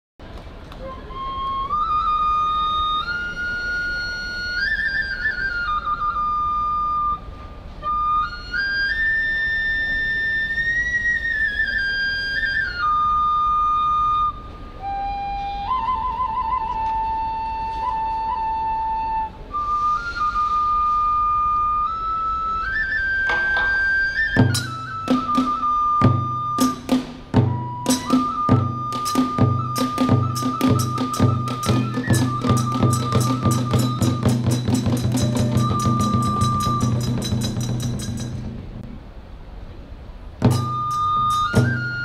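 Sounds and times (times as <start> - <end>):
bamboo flute melody: 0.3 - 42.0.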